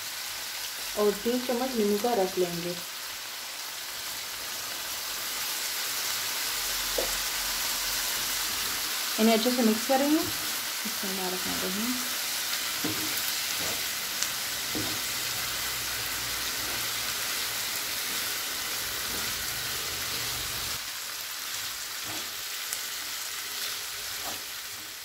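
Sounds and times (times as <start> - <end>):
chicken sizzling in hot oil: 0.0 - 25.0.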